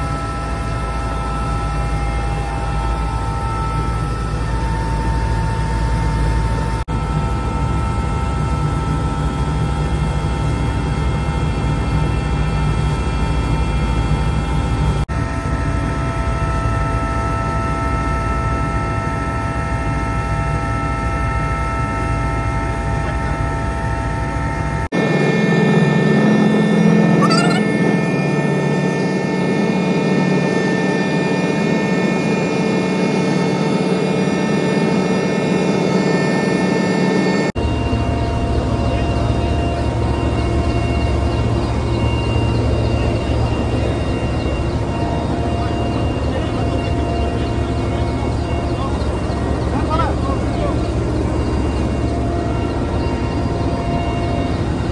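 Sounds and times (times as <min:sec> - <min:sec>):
helicopter engine and rotor drone: 0:00.0 - 0:54.9
high whines: 0:27.2 - 0:27.9.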